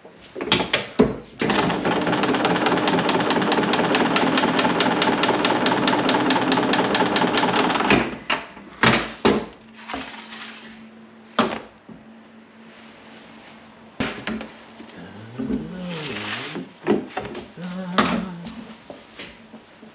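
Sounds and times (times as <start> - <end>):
machine humming and clattering: 1.4 - 8.5.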